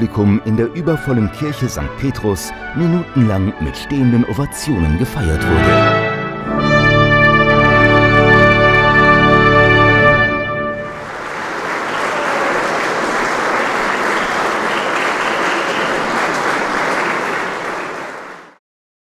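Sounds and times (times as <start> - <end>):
large audience applauding: 10.7 - 18.6.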